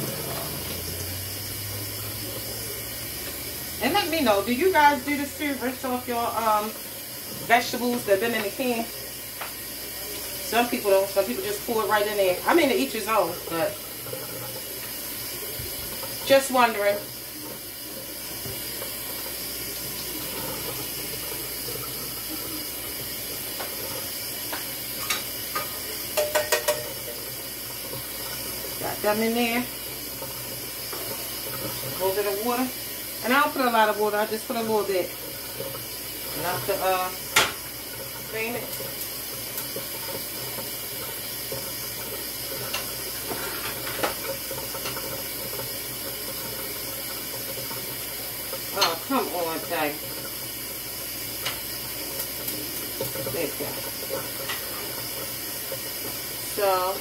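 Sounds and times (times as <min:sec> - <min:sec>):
faucet running into metal sink: 0:00.0 - 0:57.0
can clinking against saucepan: 0:24.5 - 0:27.3, 0:37.2 - 0:37.7.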